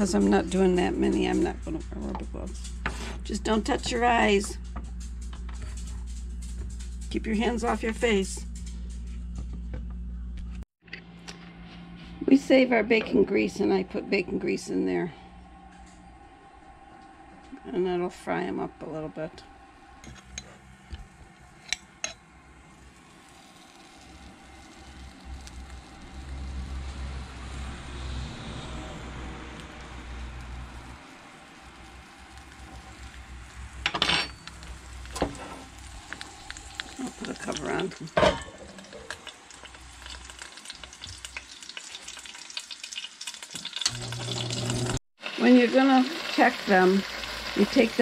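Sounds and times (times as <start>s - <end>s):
peppers sizzling in grease: 22.8s - 48.0s
metal pan lid clatter: 38.2s - 38.7s.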